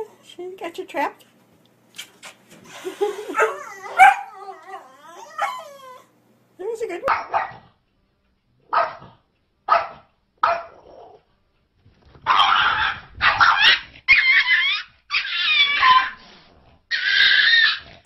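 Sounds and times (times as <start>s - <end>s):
small dog barking and yelping: 3.3s - 6.1s, 7.1s - 7.6s, 9.7s - 11.2s, 12.2s - 16.2s, 16.9s - 17.9s.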